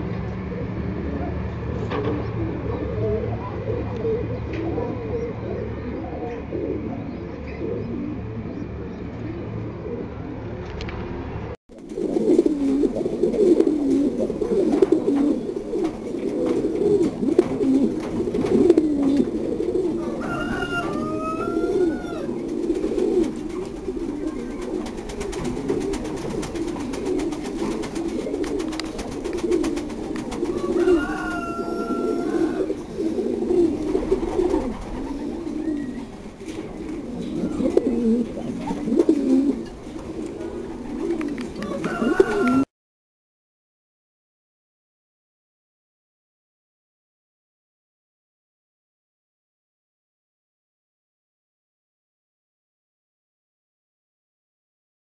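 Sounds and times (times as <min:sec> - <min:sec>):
pigeons cooing: 0:00.0 - 0:10.6, 0:11.8 - 0:42.7.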